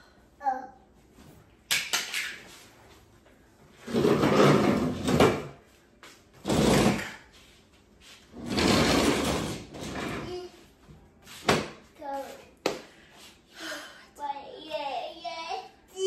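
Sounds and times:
table scraping and dragging: 3.8s - 5.6s, 6.4s - 10.5s.

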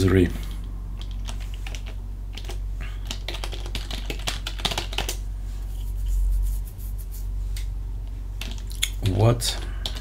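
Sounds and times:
low steady hum: 0.0s - 10.0s
computer keyboard keys clicking: 1.0s - 5.2s, 8.4s - 8.9s.

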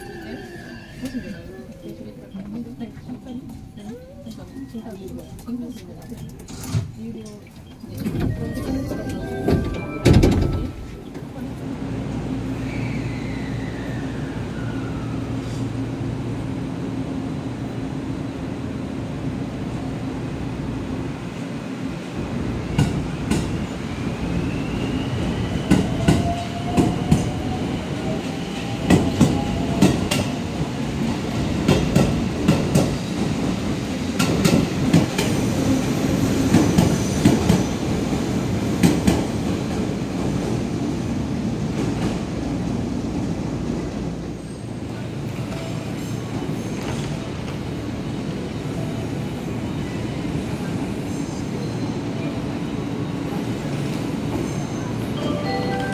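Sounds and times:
train rumble: 0.0s - 55.9s.

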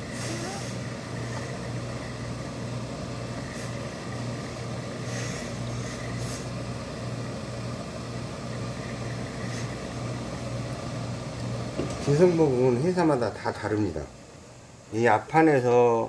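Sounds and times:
steam iron hissing: 0.0s - 1.8s, 3.4s - 4.0s, 4.9s - 6.7s
low machine hum: 0.0s - 16.0s.

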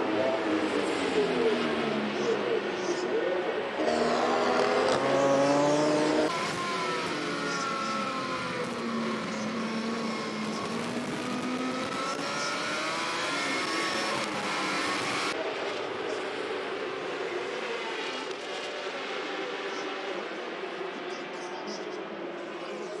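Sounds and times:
motorbike engine at high revs: 3.8s - 15.4s.

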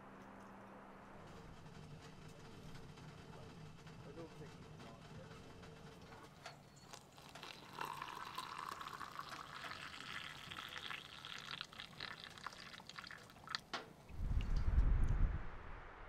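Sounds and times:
liquid pouring into a steel mug: 6.8s - 13.7s.

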